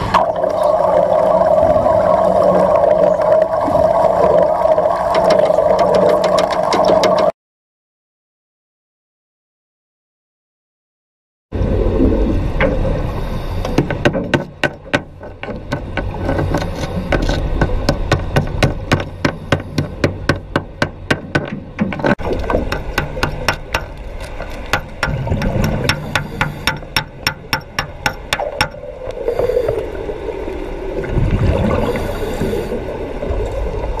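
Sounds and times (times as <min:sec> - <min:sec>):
breathing bubbles rumbling: 0:00.0 - 0:07.3, 0:11.6 - 0:14.0, 0:22.0 - 0:34.0
metallic taps underwater: 0:13.7 - 0:28.9.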